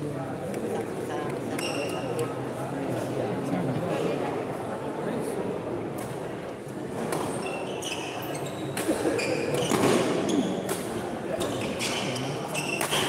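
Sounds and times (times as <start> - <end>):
crowd murmur: 0.0 - 13.0
shoes squeaking on court: 7.2 - 10.7, 11.4 - 13.0
racket hitting shuttlecock: 12.6 - 13.0.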